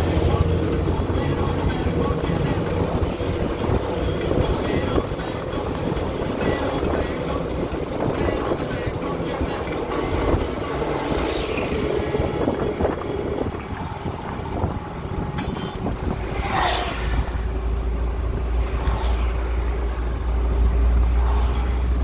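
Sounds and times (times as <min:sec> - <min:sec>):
car engine and tyre rumble: 0:00.0 - 0:22.0
wind noise: 0:00.1 - 0:17.6.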